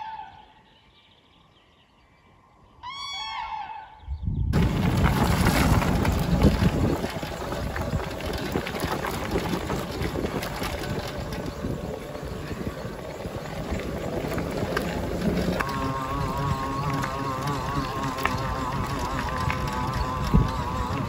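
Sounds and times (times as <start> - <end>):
wind rumbling on microphone: 4.0 - 21.0
tyres crunching over gravel: 4.6 - 21.0.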